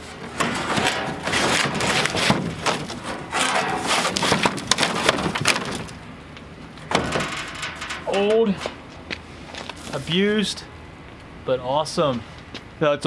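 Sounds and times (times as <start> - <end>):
metal sign scraping and knocking wood: 0.0 - 6.0.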